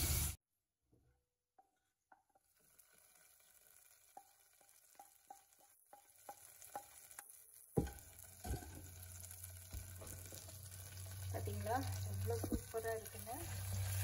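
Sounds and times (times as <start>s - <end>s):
spatula knocking against pot: 7.8s - 8.8s.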